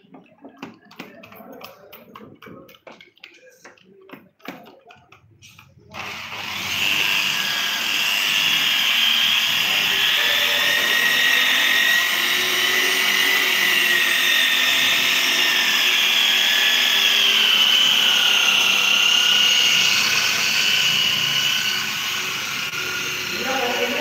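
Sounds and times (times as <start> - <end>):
electric drill motor whine: 5.9 - 24.0.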